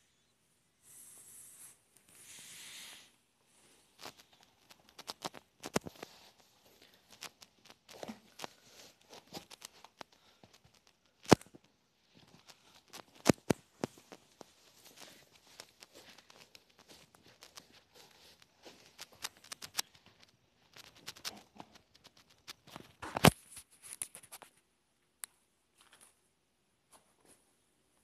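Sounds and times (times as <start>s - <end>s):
short hissing noise: 0.8s - 3.2s
shoe fabric and laces rustling: 1.4s - 24.5s.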